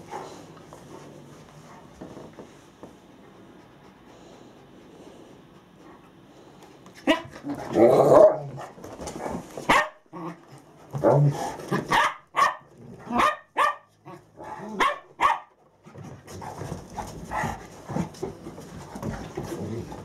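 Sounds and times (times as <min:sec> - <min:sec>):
dogs barking: 0:09.7 - 0:10.0, 0:11.8 - 0:15.6.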